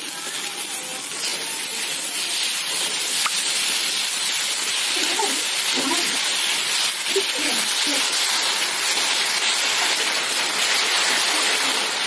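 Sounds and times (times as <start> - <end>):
fruit sizzling in frying oil: 0.0 - 12.0.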